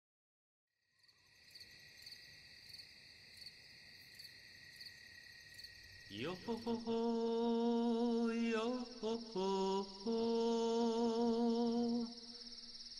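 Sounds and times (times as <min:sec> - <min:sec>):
crickets chirping: 0:00.8 - 0:12.9.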